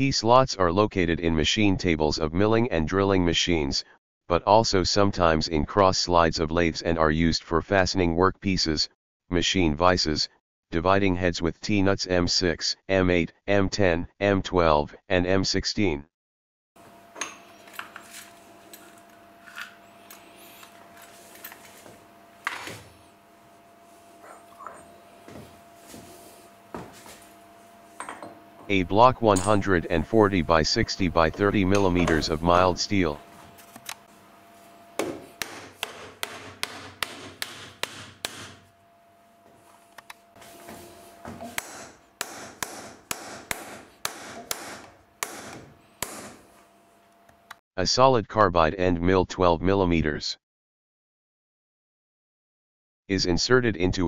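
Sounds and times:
faint steady hum: 16.8s - 47.6s.

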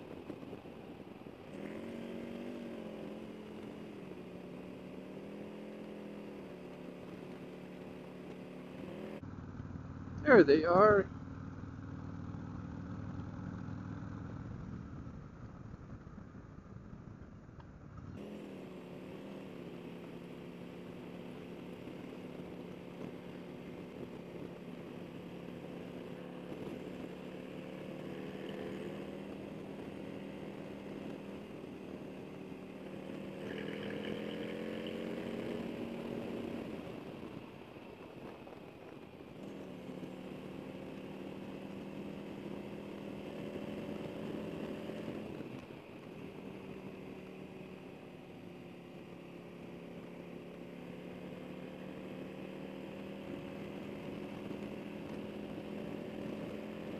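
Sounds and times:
motorcycle engine revving: 0.0s - 37.6s, 39.3s - 56.9s.

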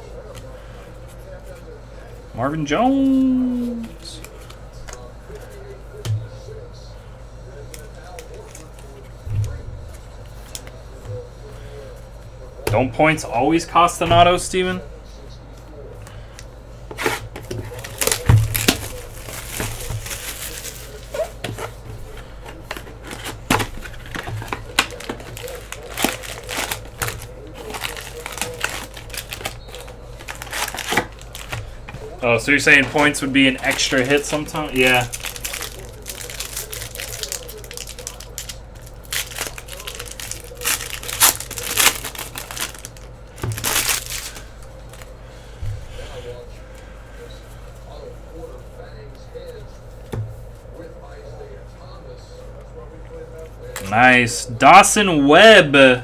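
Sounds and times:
cards rustling: 7.6s - 12.2s, 15.5s - 45.2s
wrappers crinkling: 16.9s - 45.1s.

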